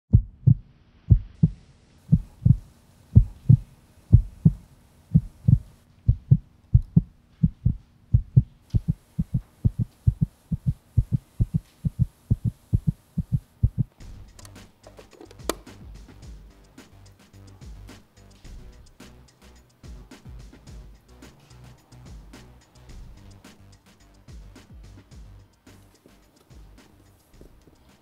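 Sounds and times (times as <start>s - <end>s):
heartbeat thumps: 0.1s - 14.5s, 17.6s - 18.9s.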